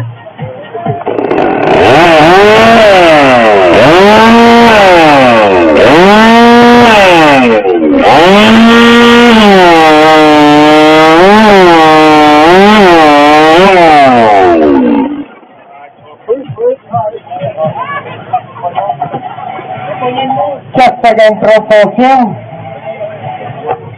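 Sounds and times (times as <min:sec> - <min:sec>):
chainsaw revving and cutting log: 0:01.0 - 0:15.4.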